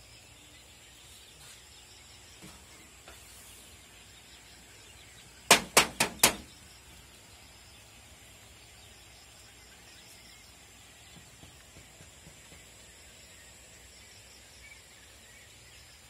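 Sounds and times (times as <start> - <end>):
sharp knocks: 5.5 - 6.6.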